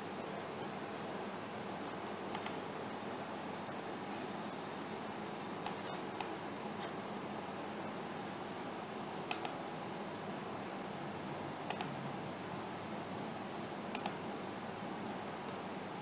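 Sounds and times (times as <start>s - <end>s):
steady background hiss: 0.0s - 16.0s
mouse button double-clicking: 2.4s - 2.6s, 11.7s - 11.9s.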